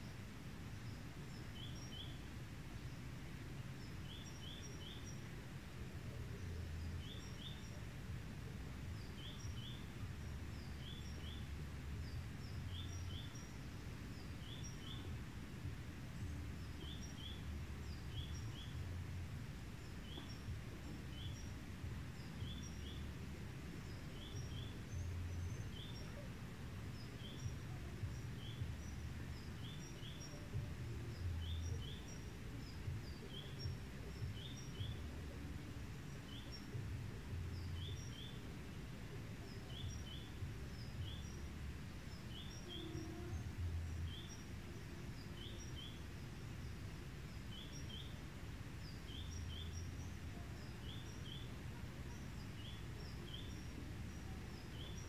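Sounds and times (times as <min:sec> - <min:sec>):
low outdoor rumble: 0:00.0 - 0:55.0
small bird chirping: 0:16.1 - 0:38.6, 0:39.3 - 0:55.0.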